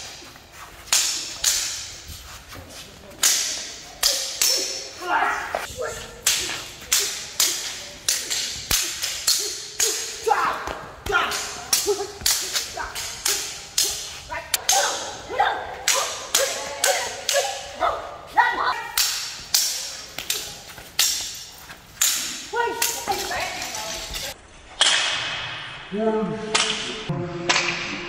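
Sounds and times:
blades clashing: 0:03.1 - 0:17.9, 0:18.6 - 0:24.4.

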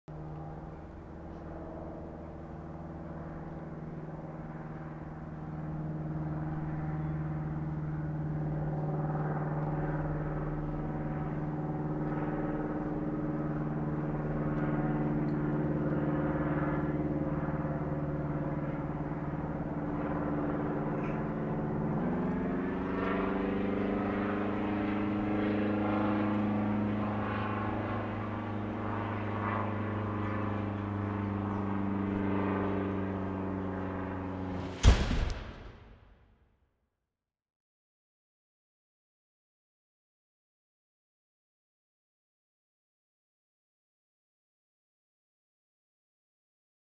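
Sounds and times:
propeller plane engine droning: 0:00.1 - 0:36.2.

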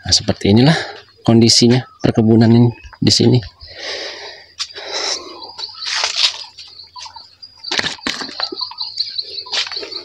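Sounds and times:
birds chirping: 0:00.0 - 0:10.0
crunching rustles: 0:05.6 - 0:10.0.

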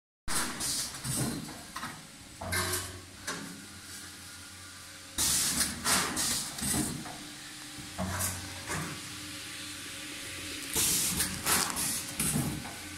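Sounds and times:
packaging machine hiss bursts: 0:00.3 - 0:01.5, 0:05.2 - 0:07.0, 0:10.4 - 0:12.9
low machine hum: 0:01.0 - 0:12.9.

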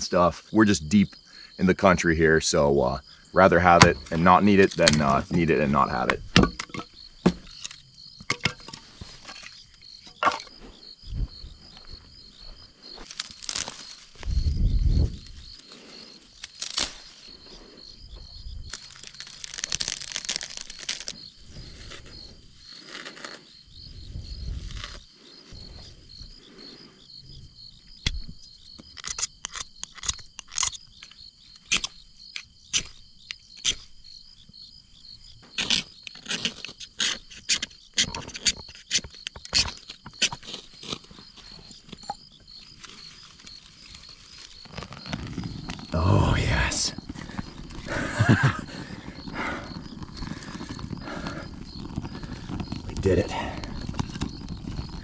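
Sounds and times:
crickets chirping: 0:00.0 - 0:55.0
dry grass rustling: 0:08.6 - 0:18.0, 0:18.6 - 0:25.9, 0:40.4 - 0:45.9.

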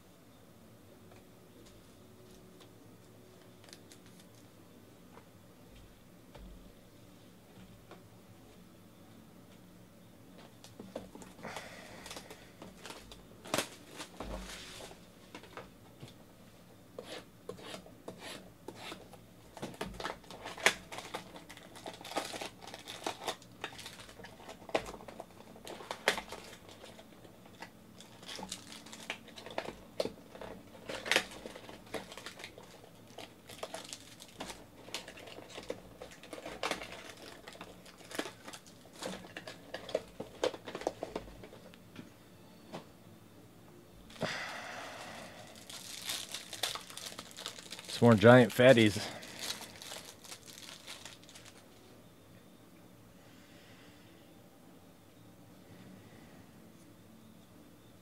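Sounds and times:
plastic crinkling and crackling: 0:03.4 - 0:04.4, 0:10.6 - 0:15.6, 0:19.5 - 0:41.7, 0:45.0 - 0:51.8
shrink-wrap tearing: 0:19.7 - 0:41.2, 0:45.0 - 0:51.6.

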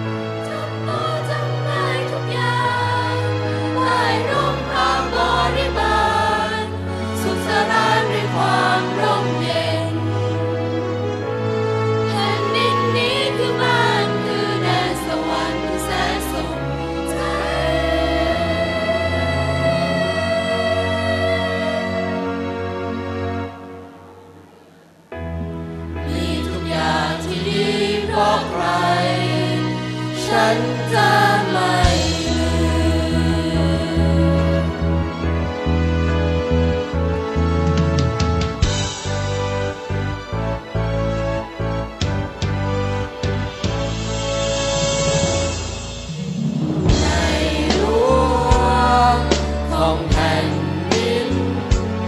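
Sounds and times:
mixed choir singing in harmony: 0:00.0 - 0:24.1, 0:25.9 - 0:35.0, 0:44.7 - 0:52.0
instrumental accompaniment with bass: 0:00.0 - 0:52.0.

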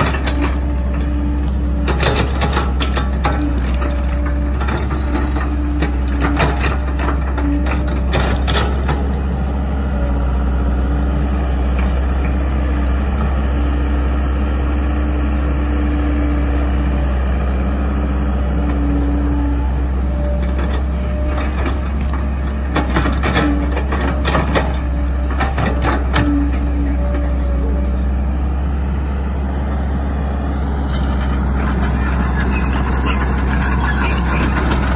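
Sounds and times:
excavator diesel engine running: 0:00.0 - 0:34.9.

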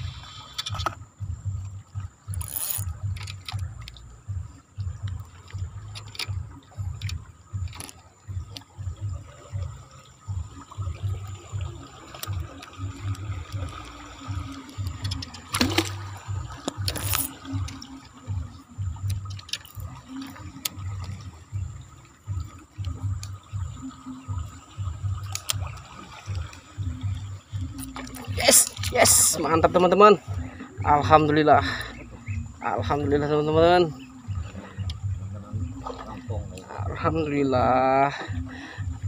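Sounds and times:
rhythmic low thudding: 0:00.0 - 0:39.0
river water splashing: 0:00.0 - 0:39.0
sharp splash: 0:15.1 - 0:17.9.

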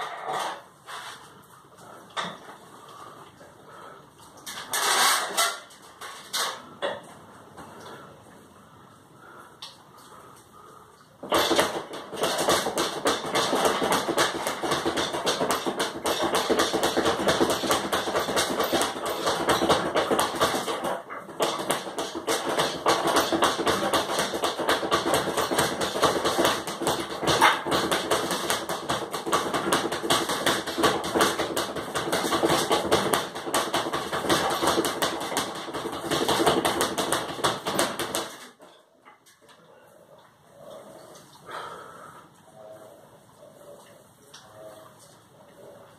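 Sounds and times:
speed bag rattling: 0:11.2 - 0:38.5.

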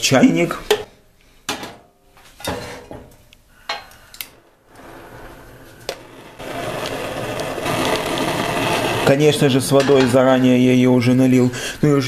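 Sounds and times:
gas burner hissing: 0:03.7 - 0:11.9.

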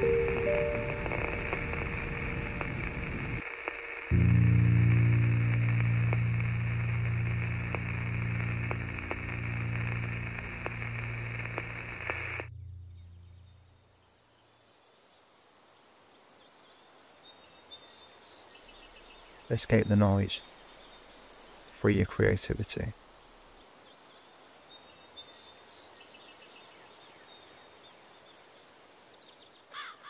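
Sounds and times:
low drone chord: 0:00.0 - 0:03.4, 0:04.1 - 0:14.2
static hiss: 0:00.0 - 0:29.8
faint outdoor ambience: 0:00.0 - 0:30.0.

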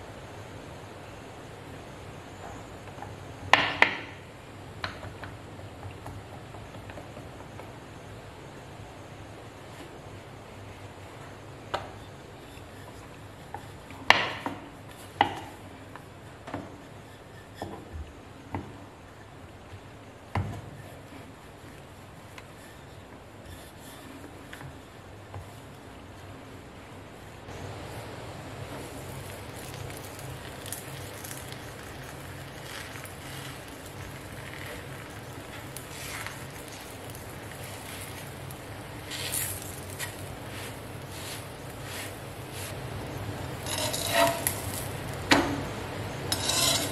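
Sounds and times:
gas stove burner hiss: 0:00.0 - 0:46.9
rolling pin rolling dough: 0:09.1 - 0:26.7, 0:28.7 - 0:46.9
flatbread sizzling on hot pan: 0:27.9 - 0:46.9.

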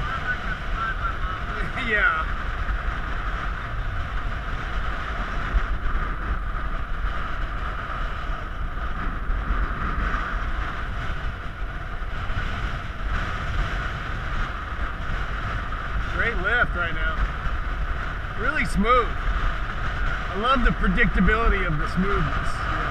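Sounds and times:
wind buffeting microphone: 0:00.0 - 0:22.9.

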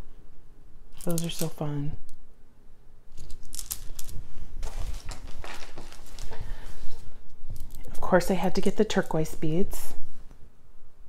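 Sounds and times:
glass beads clicking together: 0:03.2 - 0:04.2.

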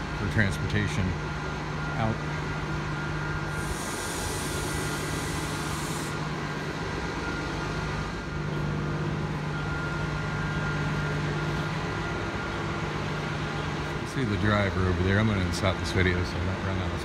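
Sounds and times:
bus engine idling: 0:00.0 - 0:17.0
high hiss: 0:03.5 - 0:06.2.

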